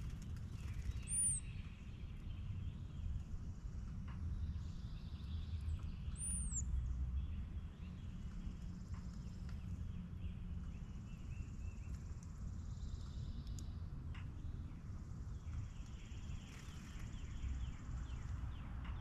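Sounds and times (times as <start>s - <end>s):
songbird calls: 0.6s - 2.4s, 4.6s - 6.8s.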